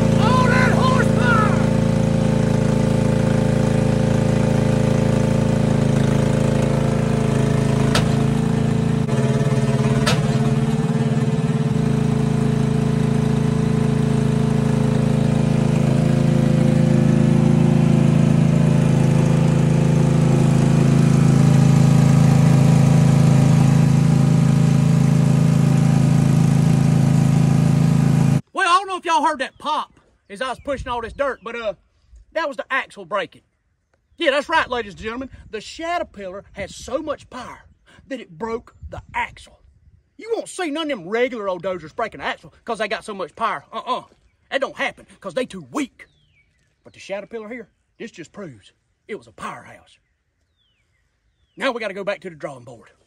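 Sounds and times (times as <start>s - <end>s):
lawnmower engine running: 0.0s - 28.4s.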